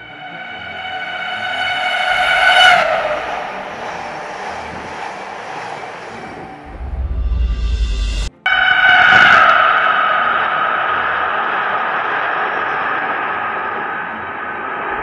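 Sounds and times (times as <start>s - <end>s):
high-pitched train horn: 0.0s - 5.3s, 6.3s - 13.0s
deep rumble: 0.0s - 15.0s
train rushing past: 0.0s - 15.0s.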